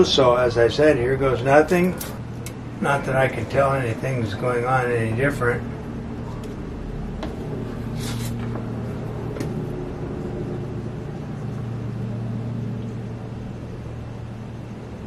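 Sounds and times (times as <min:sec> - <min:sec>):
low mechanical hum: 0:00.0 - 0:15.0
light scrapes: 0:07.9 - 0:08.6.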